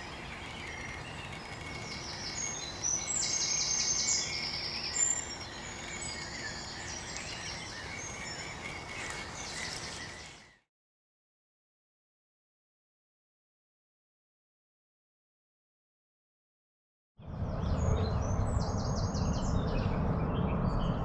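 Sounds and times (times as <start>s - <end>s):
outdoor background hiss: 0.0s - 10.5s
birds singing: 0.0s - 10.7s, 17.6s - 21.0s.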